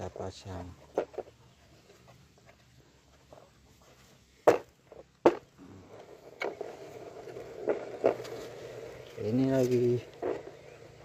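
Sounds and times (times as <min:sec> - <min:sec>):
low rubbing of handling: 0:00.7 - 0:11.0.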